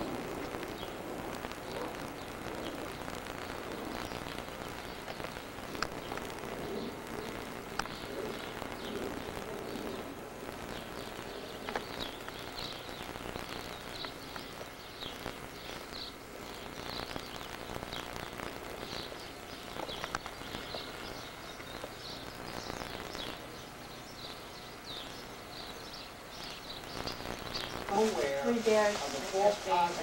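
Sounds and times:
faint clicks: 0.0s - 23.4s
outdoor hiss: 0.0s - 30.0s
small birds chirping: 0.0s - 30.0s.

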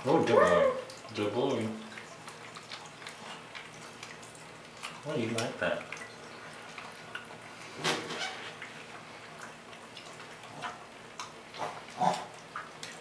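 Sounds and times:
dog licking and smacking lips: 2.0s - 7.3s.

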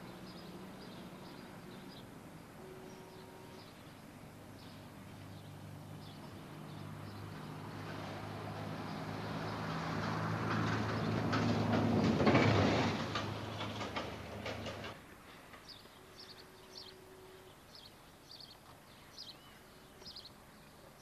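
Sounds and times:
rail vehicle engine running: 0.0s - 18.6s
wheels clattering over rail joints: 9.8s - 16.4s
bird chirps: 15.6s - 20.8s.

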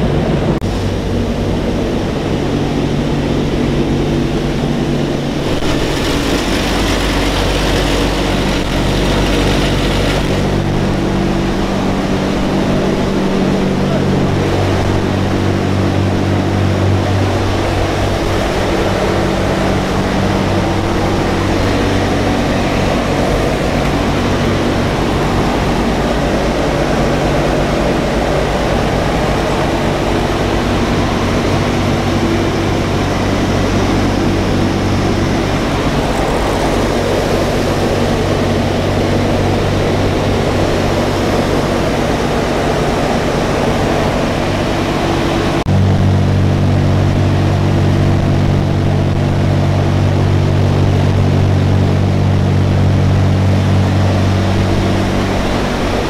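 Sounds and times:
aircraft engines low hum: 0.0s - 56.0s
rush of air noise: 0.0s - 56.0s.

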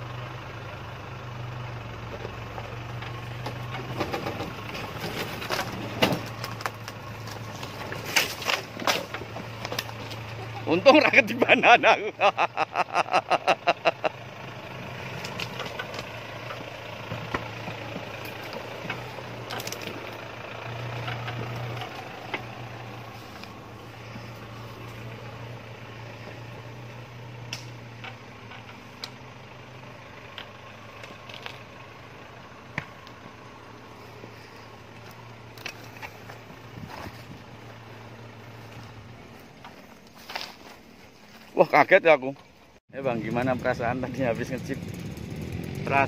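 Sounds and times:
jeep engine running at low revs: 0.0s - 41.3s, 42.4s - 46.0s.

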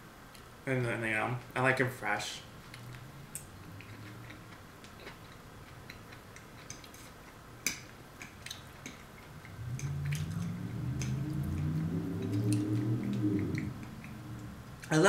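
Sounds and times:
soft chewing: 2.5s - 14.9s.

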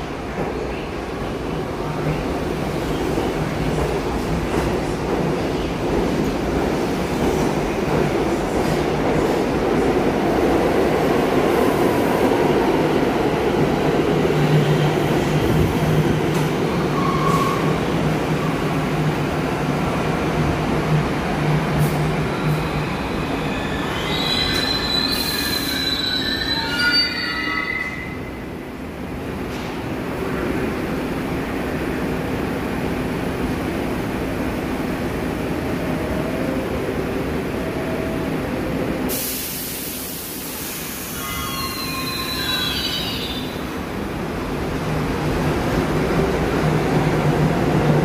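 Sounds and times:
subway train rumble: 0.0s - 48.0s
train wheel squeal: 16.9s - 17.8s, 22.3s - 28.4s, 41.0s - 43.6s.

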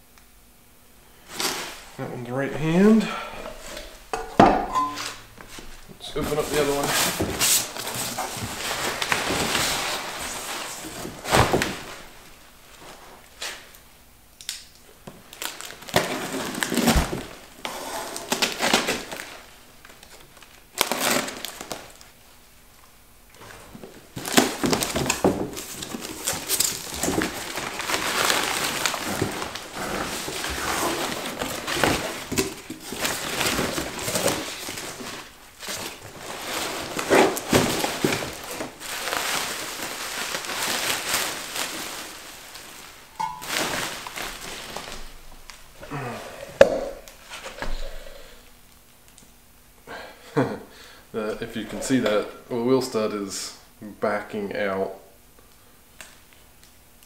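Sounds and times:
bubble wrap crinkling: 5.0s - 22.4s, 23.3s - 46.1s.

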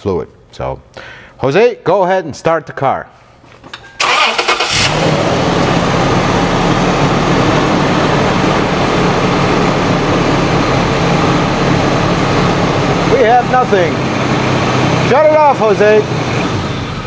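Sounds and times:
engine cranking on starter: 4.0s - 6.3s
car engine idling: 4.0s - 17.0s.

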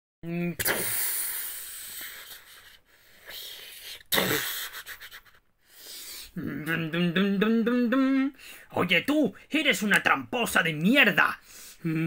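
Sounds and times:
person breathy hissing and puffing: 0.6s - 6.4s
person wavering voiced sound: 6.4s - 8.4s.

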